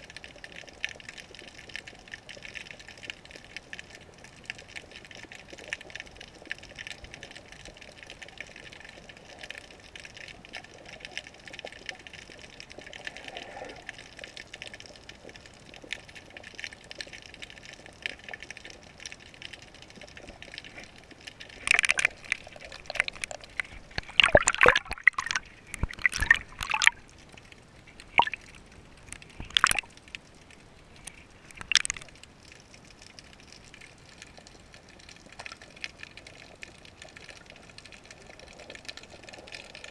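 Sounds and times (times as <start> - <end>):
muffled underwater hiss: 0.0 - 39.9
sharp clicks and knocks: 31.0 - 32.1.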